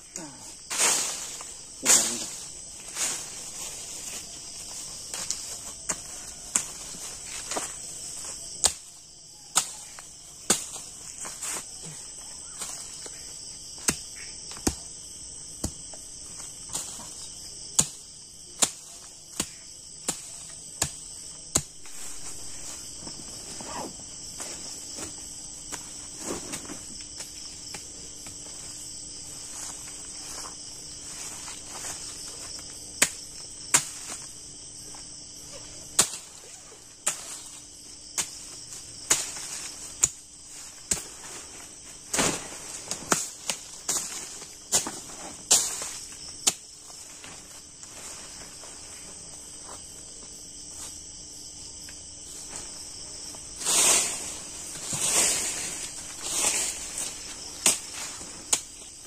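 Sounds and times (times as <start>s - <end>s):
crickets and insects chirring: 0.0s - 59.0s
sticks snapping and knocking: 5.1s - 7.7s, 8.6s - 10.8s, 57.6s - 58.8s.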